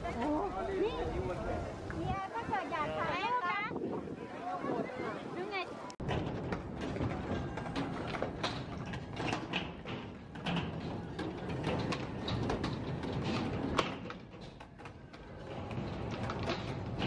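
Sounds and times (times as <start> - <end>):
skateboard wheels rolling on concrete: 0.0 - 17.0
skateboards clacking: 6.0 - 17.0.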